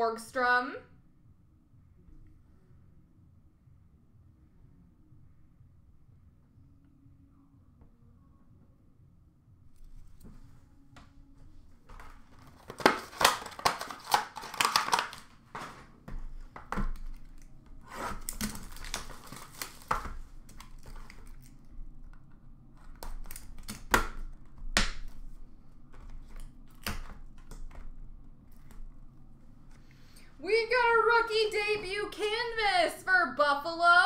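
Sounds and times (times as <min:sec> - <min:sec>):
wrappers crinkling: 0:11.9 - 0:16.0, 0:17.0 - 0:21.7.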